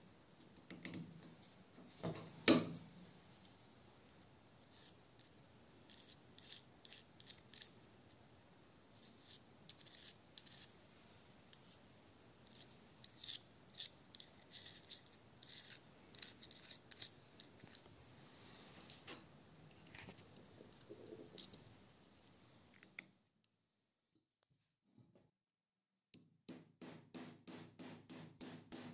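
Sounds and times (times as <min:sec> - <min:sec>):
light metallic clicks and scrapes: 0:12.4 - 0:17.9, 0:18.5 - 0:21.6.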